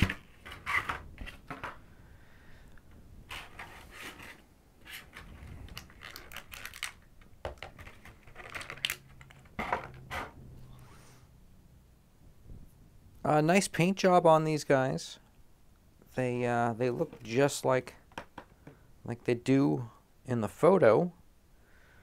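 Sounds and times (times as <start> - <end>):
plastic tray crinkling and clicking: 5.1 - 10.0.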